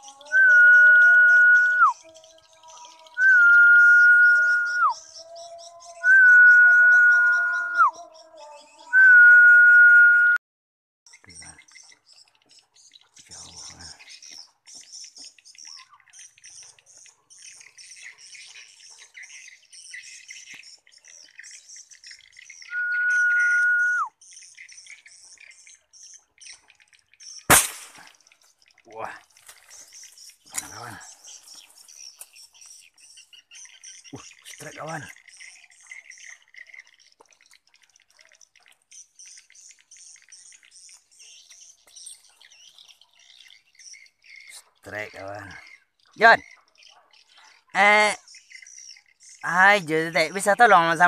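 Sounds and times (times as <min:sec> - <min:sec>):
small birds chirping: 0:00.0 - 0:09.0, 0:11.1 - 0:51.0
loud steady whistle: 0:22.7 - 0:24.1.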